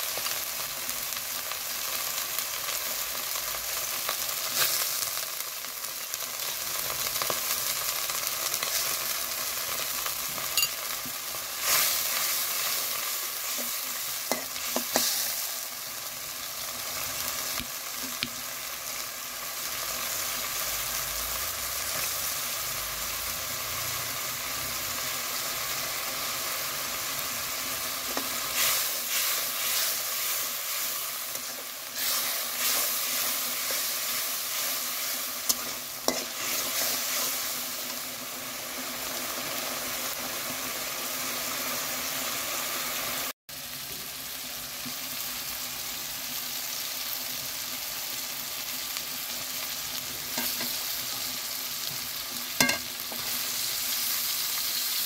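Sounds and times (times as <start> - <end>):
onions sizzling in hot oil: 0.0 - 55.0
metal spatula scraping pan: 34.6 - 37.5.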